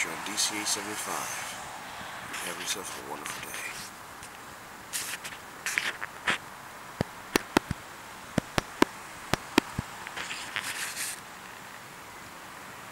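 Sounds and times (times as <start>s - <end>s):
bursts of hiss: 4.9s - 6.4s, 8.4s - 11.2s
sharp clicks and taps: 7.0s - 7.8s, 8.4s - 10.6s.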